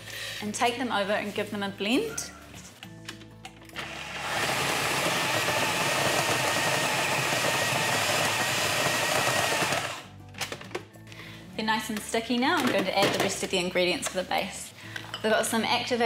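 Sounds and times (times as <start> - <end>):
food processor motor running: 3.8 - 10.1.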